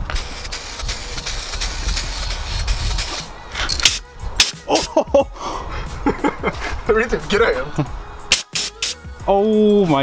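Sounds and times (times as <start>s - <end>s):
spray paint can hissing: 0.0s - 4.9s, 8.3s - 9.0s.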